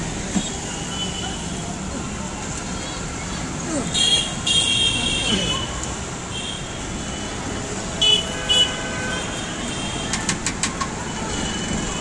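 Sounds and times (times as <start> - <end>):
street traffic: 0.0 - 12.0.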